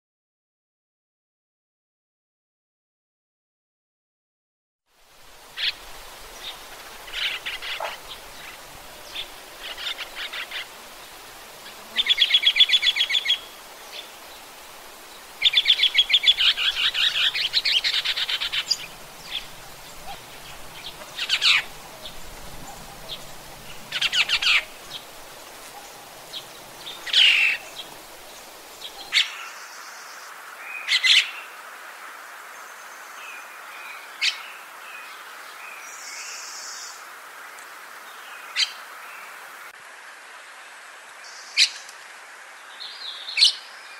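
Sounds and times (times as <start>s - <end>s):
steady hiss: 4.9s - 43.9s.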